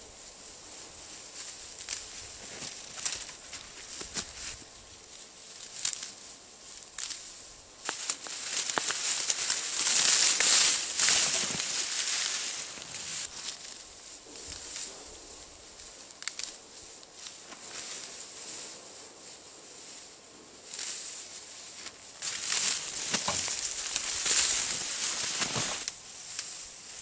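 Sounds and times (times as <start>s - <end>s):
dry grass rustling: 0.0s - 27.0s
grass stems snapping: 1.7s - 4.5s, 5.6s - 6.1s, 6.8s - 13.6s, 16.1s - 17.7s, 21.8s - 26.6s.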